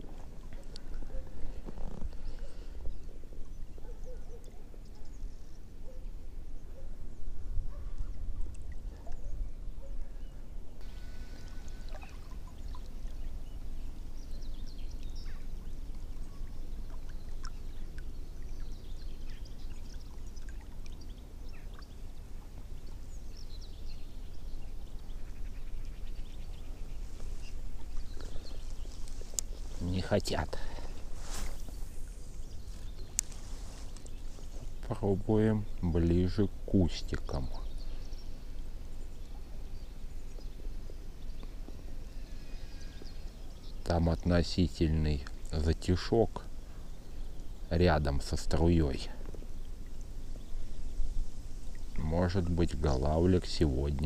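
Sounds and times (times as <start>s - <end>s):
water lapping against boat: 10.9s - 23.0s
faint clicks: 27.9s - 29.6s, 32.8s - 34.2s.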